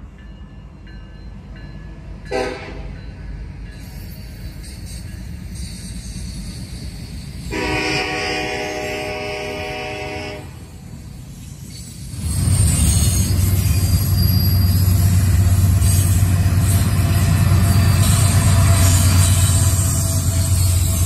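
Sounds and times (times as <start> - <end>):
train cars rumbling past: 0.0 - 21.0
train air horn chord: 2.3 - 2.9, 7.5 - 10.6.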